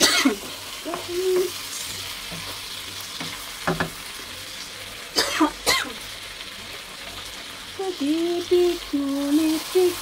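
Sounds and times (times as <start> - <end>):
chicken sizzling in a pan: 0.0 - 10.0
spatula knocking and scraping pan: 0.9 - 4.0.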